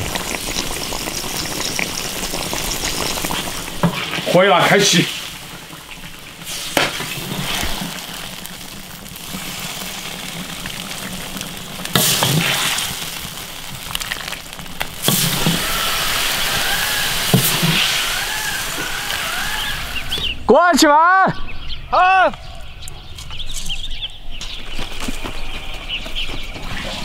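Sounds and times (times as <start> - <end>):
stew sizzling and bubbling: 0.0 - 20.4.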